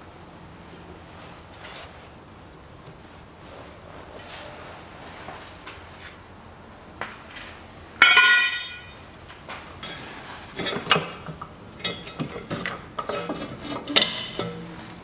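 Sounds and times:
hand tools clanking on metal: 8.0 - 9.0, 9.8 - 14.9.

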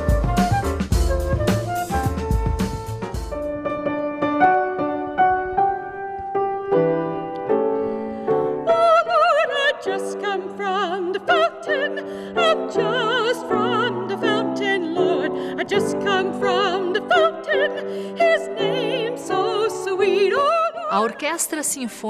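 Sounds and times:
grand piano playing: 0.0 - 20.7
soprano singing with vibrato: 8.6 - 21.9.

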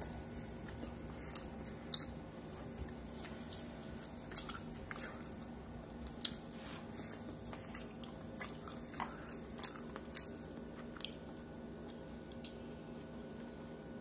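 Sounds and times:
person chewing food: 0.0 - 13.4
faint steady hum: 0.0 - 14.0.

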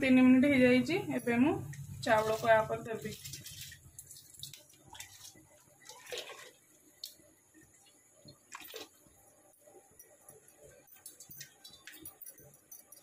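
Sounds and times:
rice splashing into water: 3.0 - 7.2.

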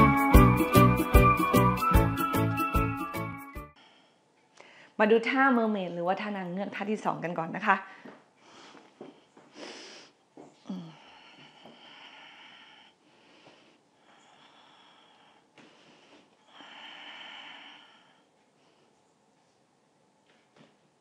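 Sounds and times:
woman breathing slowly: 3.7 - 5.0, 7.9 - 19.1.

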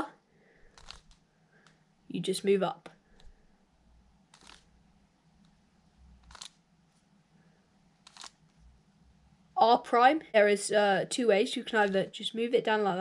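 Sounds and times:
plastic puzzle cube clicks: 0.6 - 1.8, 4.3 - 4.7, 6.2 - 6.6, 8.0 - 8.6.

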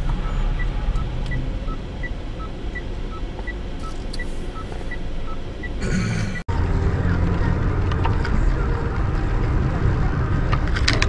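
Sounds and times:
car rumble from inside: 0.0 - 11.0
two-tone electronic beeps: 0.2 - 6.4.

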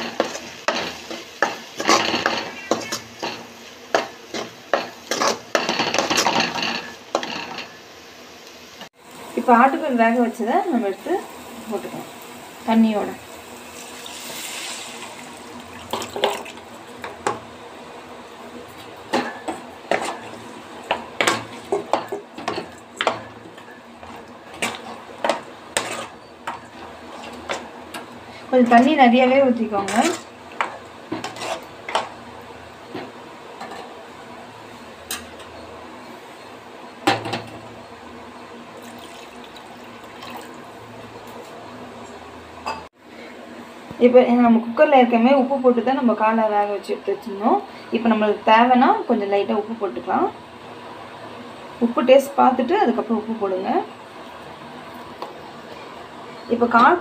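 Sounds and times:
steel ladle scraping pan: 0.0 - 7.8, 19.2 - 27.7, 28.3 - 32.1
liquid poured into hot pan hissing: 13.3 - 16.6
water pouring: 38.8 - 40.6.

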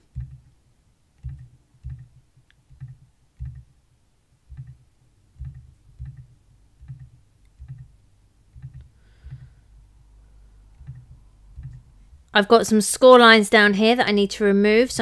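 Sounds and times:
computer mouse clicking: 0.1 - 0.5, 1.2 - 3.7, 4.5 - 4.8, 5.4 - 9.5, 10.7 - 12.3.

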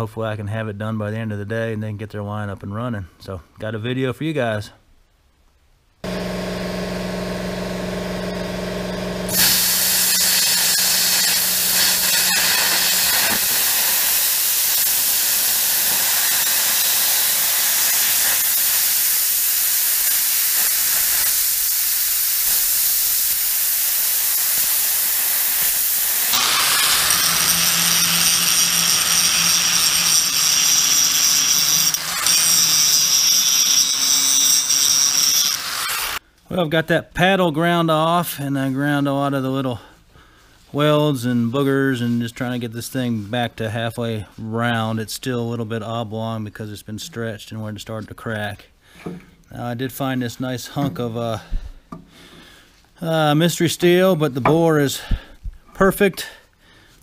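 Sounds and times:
angle grinder grinding steel: 6.0 - 21.7, 24.1 - 36.2
plasma cutter humming: 6.0 - 36.2
plasma arc hissing: 9.3 - 36.2.

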